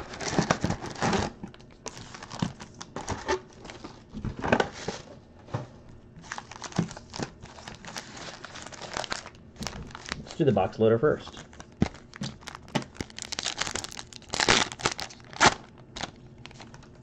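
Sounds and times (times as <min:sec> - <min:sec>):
card pack wrappers crinkling: 0:00.0 - 0:04.1, 0:06.2 - 0:17.0.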